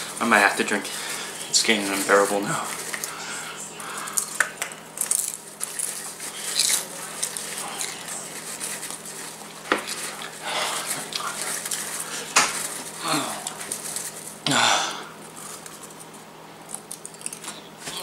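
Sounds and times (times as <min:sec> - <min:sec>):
popcorn rustling in plastic bowl: 0:00.0 - 0:14.4, 0:15.2 - 0:18.0
chewing: 0:03.9 - 0:14.3, 0:15.3 - 0:17.8.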